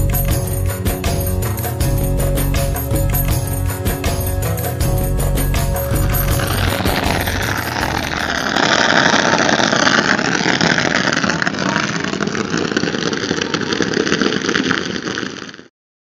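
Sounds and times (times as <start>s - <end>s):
firecrackers crackling: 5.8s - 15.7s.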